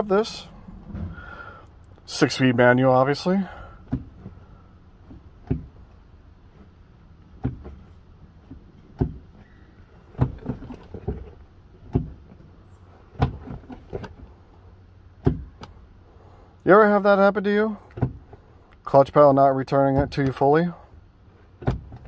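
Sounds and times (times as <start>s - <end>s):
clutch pedal clunk: 21.6s - 22.0s.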